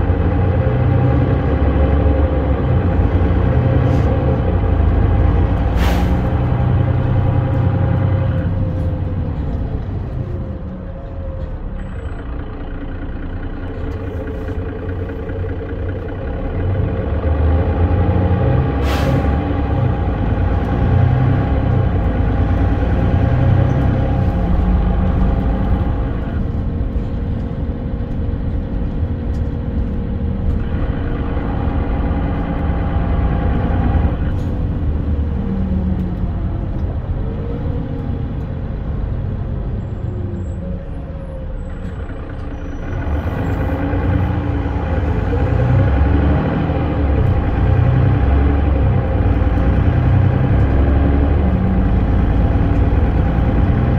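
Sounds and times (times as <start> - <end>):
bus diesel engine from inside: 0.0 - 53.9.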